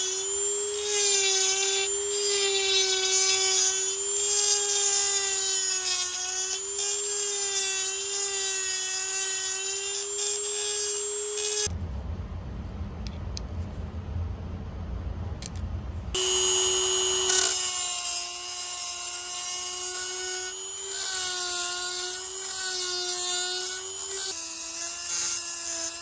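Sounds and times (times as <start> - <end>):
rotary tool grinding metal: 0.0 - 11.7, 16.2 - 26.0
low rumble: 11.7 - 16.2.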